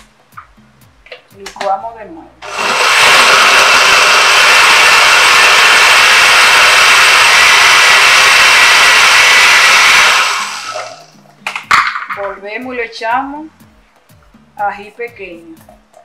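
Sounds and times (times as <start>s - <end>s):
blender whirring: 2.4s - 11.2s.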